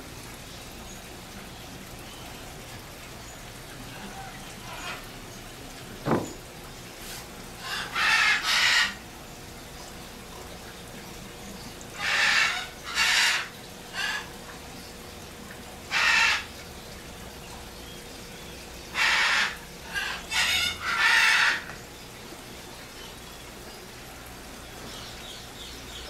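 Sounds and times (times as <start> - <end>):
faint steady hum: 0.0 - 26.0
brief thump: 6.0 - 6.4
bird squawking: 12.0 - 14.3, 15.9 - 16.5.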